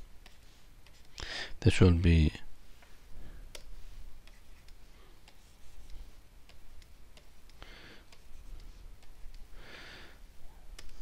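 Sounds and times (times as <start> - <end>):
soft hiss: 0.0 - 11.0
stylus clicking on drawing tablet: 3.5 - 9.5, 10.8 - 11.0.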